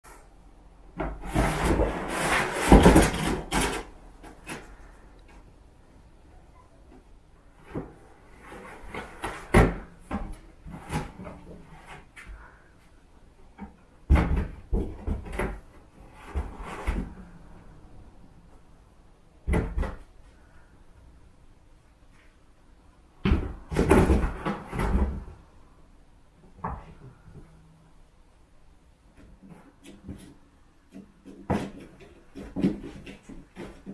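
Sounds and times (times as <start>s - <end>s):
kittens bumping and scratching box: 0.9s - 4.9s, 7.6s - 12.3s, 13.6s - 17.4s, 23.2s - 25.5s, 29.2s - 33.9s
kittens scratching at box: 1.0s - 4.9s, 29.4s - 33.9s.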